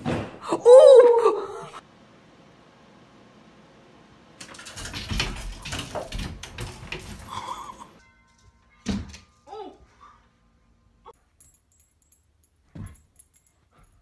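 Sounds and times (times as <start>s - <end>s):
cat scrambling thumps and clattering: 4.4s - 7.3s.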